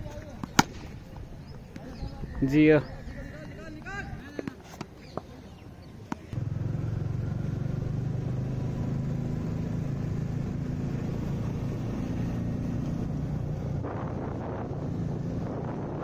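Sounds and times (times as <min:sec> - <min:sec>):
cricket bat striking ball: 0:00.3 - 0:01.2
motorcycle engine running: 0:06.4 - 0:16.0.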